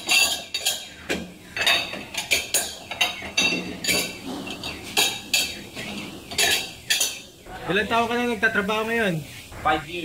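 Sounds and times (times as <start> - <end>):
ceramic bowls clinking: 0.0 - 7.3.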